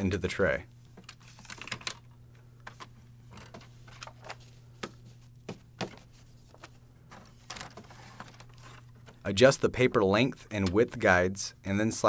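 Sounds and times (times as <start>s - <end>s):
low steady hum: 0.0s - 12.0s
paper stack being handled: 1.0s - 10.0s.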